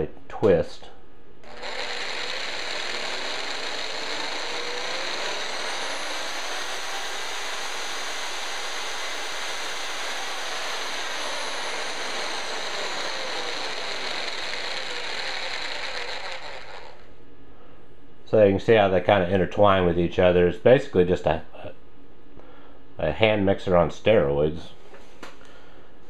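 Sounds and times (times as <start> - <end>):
mortar mixer motor whine: 1.4 - 17.1.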